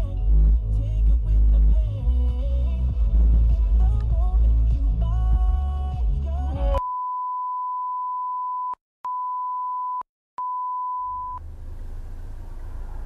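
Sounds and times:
moving car rumble: 0:00.0 - 0:06.8, 0:10.9 - 0:13.0
high-pitched censor bleep: 0:06.8 - 0:11.4.

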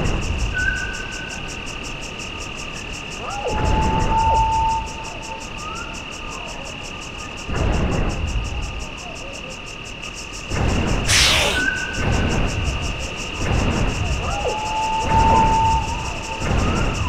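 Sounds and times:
harsh hissing burst: 0:11.1 - 0:11.9
insect chirring: 0:11.1 - 0:11.9.

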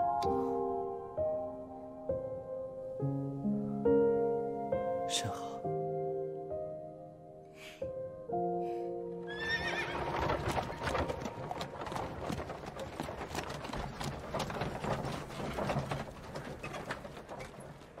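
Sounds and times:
soft instrumental music: 0:00.0 - 0:09.9
horse whinnying: 0:09.3 - 0:11.2
hooves clip-clopping: 0:09.3 - 0:18.0.

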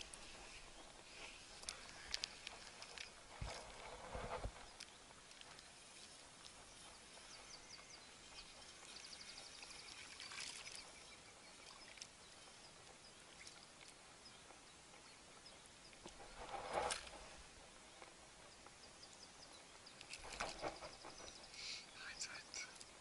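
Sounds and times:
brief rustle: 0:16.0 - 0:17.4, 0:20.0 - 0:21.4.

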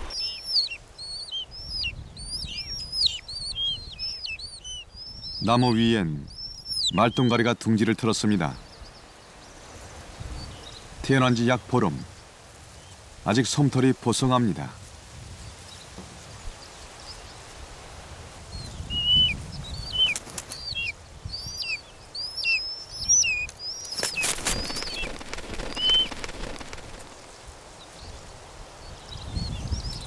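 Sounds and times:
wing flapping: 0:00.0 - 0:00.2, 0:20.0 - 0:20.7, 0:23.4 - 0:27.6
buzzard chicks calling: 0:00.0 - 0:07.6, 0:18.9 - 0:27.4.

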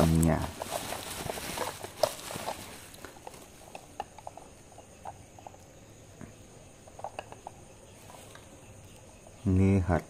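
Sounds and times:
plastic case clicks and crinkles: 0:00.2 - 0:05.6.

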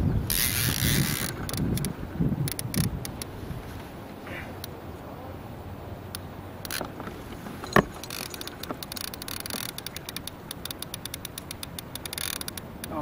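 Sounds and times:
fishing reel clicking: 0:00.3 - 0:03.3, 0:06.6 - 0:06.9, 0:08.0 - 0:13.0.

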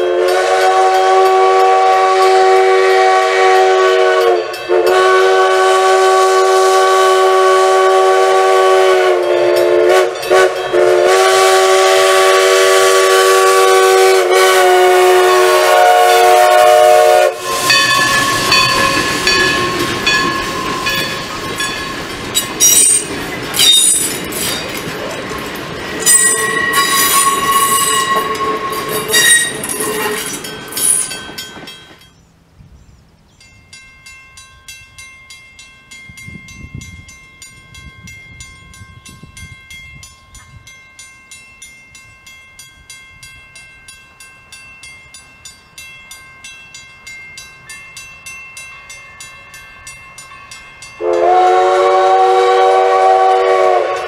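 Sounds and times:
crossing bell ringing: 0:00.2 - 0:05.8, 0:09.0 - 0:12.2, 0:16.0 - 0:32.3, 0:33.3 - 0:54.0
train wheels squealing: 0:17.4 - 0:24.8, 0:26.0 - 0:32.2.

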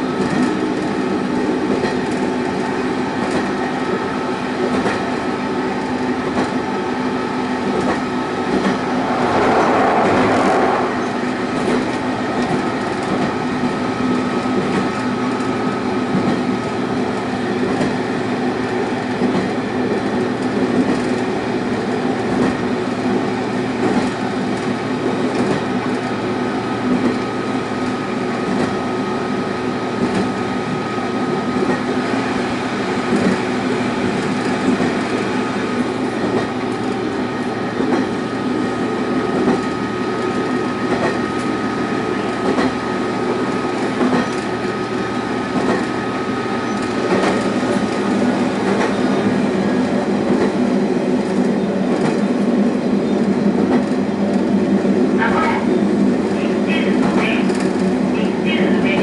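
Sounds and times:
diesel railcar engine drone: 0:00.0 - 0:59.0
brief loud rush: 0:08.4 - 0:12.8.

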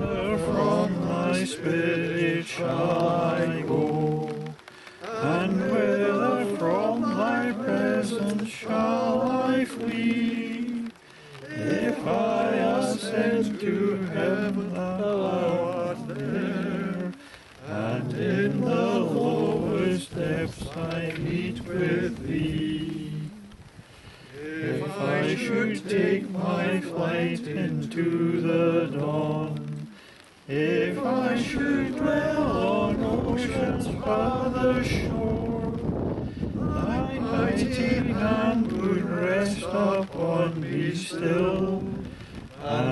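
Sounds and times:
congregation singing: 0:00.0 - 0:23.7, 0:24.3 - 0:42.9
wind rumble on microphone: 0:00.0 - 0:42.9.

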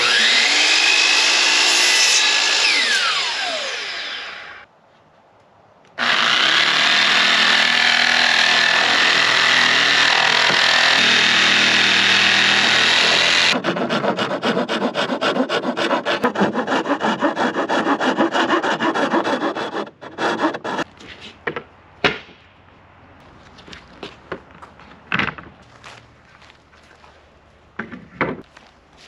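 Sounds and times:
handsaw sawing wood: 0:00.0 - 0:04.4, 0:06.0 - 0:20.9
electric jigsaw cutting wood: 0:00.0 - 0:04.6, 0:06.0 - 0:20.8.

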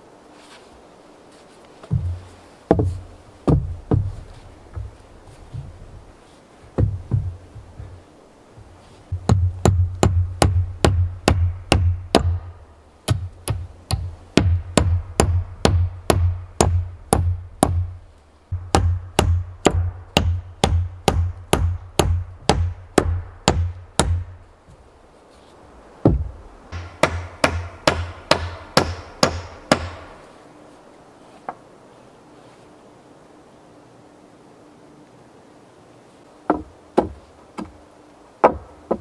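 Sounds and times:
hammer striking wood: 0:01.9 - 0:05.0, 0:06.8 - 0:07.9, 0:09.1 - 0:17.9, 0:18.5 - 0:24.4, 0:26.0 - 0:30.2, 0:36.5 - 0:37.8, 0:38.4 - 0:39.0.

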